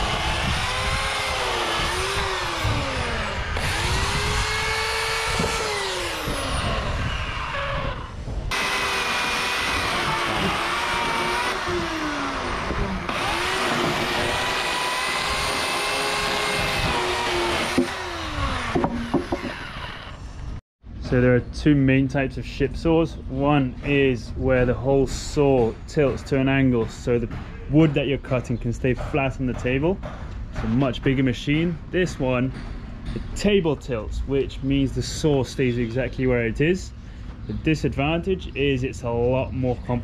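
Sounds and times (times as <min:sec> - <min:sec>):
electric chainsaw cutting wood: 0:00.0 - 0:20.2.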